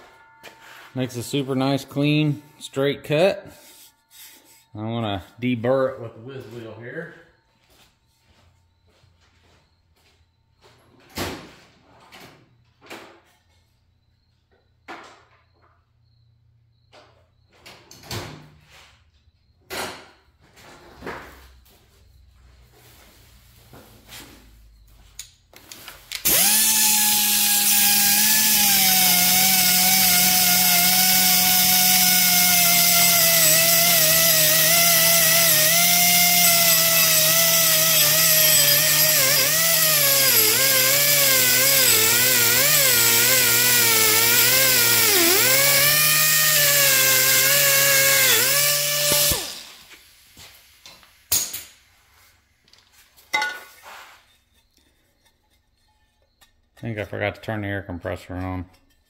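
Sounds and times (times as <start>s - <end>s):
air grinder whining: 26.2s - 50.1s.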